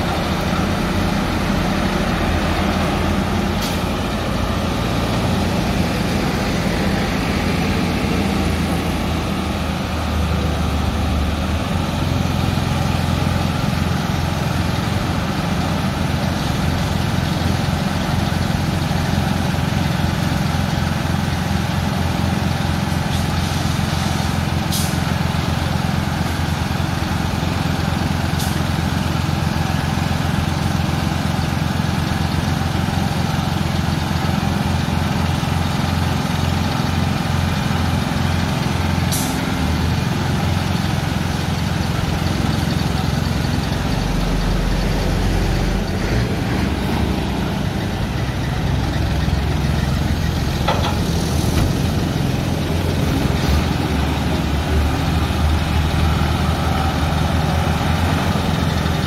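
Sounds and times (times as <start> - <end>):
diesel truck engine idling: 0.0 - 59.0.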